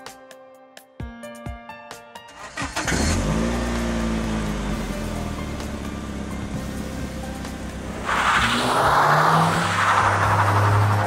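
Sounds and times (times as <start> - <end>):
background music: 0.0 - 11.0
cartoon car engine whooshing past: 8.0 - 11.0.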